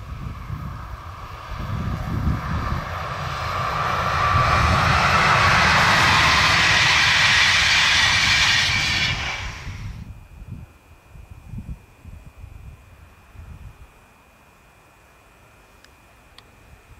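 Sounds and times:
train wheels rushing on rail: 0.0s - 10.0s.

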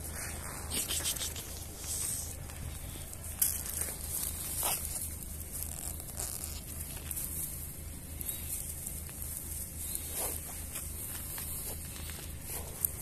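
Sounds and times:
dry grass rustling and crackling: 0.0s - 13.0s
low steady rumble: 0.0s - 13.0s.

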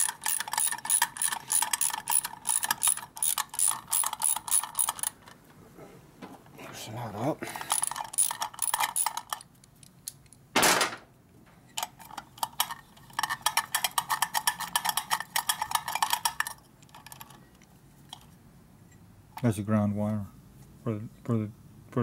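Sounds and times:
socket ratchet clicking: 0.0s - 5.2s, 7.7s - 9.4s.

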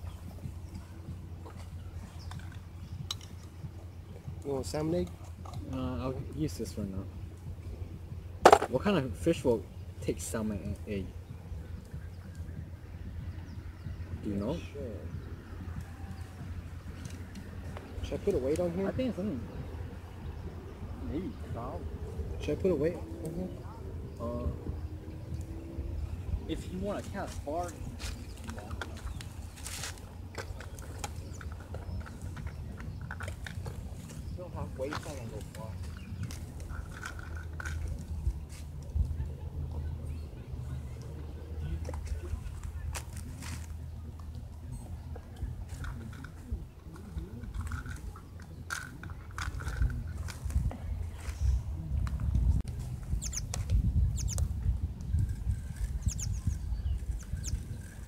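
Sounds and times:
wind rumble on microphone: 0.0s - 58.0s
high squeaky chirps: 53.1s - 53.5s.

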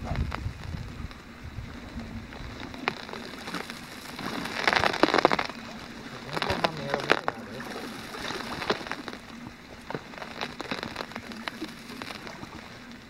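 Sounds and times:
lake ice crackling and snapping: 0.0s - 13.0s.

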